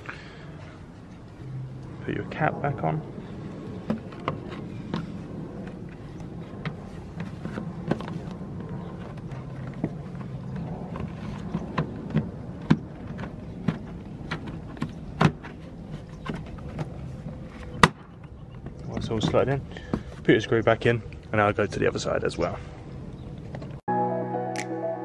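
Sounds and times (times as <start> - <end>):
steady low hum: 0.0 - 18.9.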